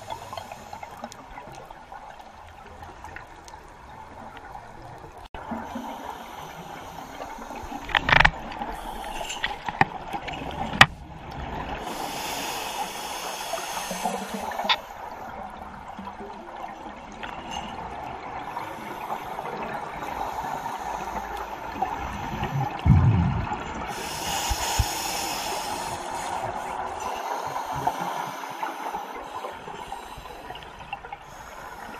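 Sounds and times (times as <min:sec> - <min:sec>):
exhaled air bubbling underwater: 0:00.0 - 0:31.9
regulator hissing inhalations: 0:05.8 - 0:07.9, 0:11.8 - 0:15.1, 0:23.9 - 0:31.9.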